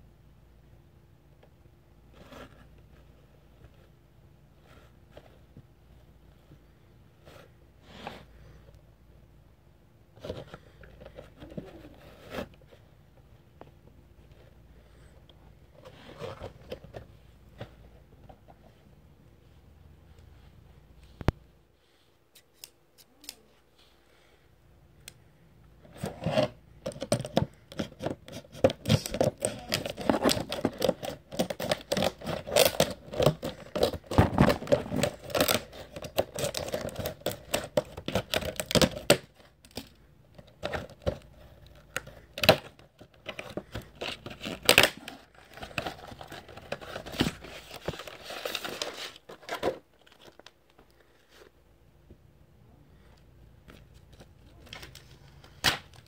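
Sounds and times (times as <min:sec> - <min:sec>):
plastic packaging crinkling and snapping: 0:26.0 - 0:51.0.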